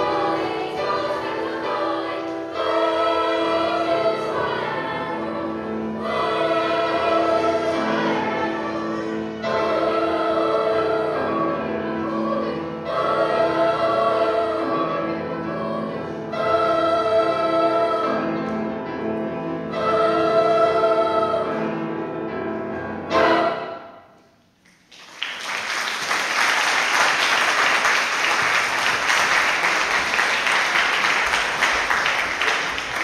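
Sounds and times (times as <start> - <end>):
youth choir singing: 0.0 - 24.0
audience applauding: 24.7 - 33.0.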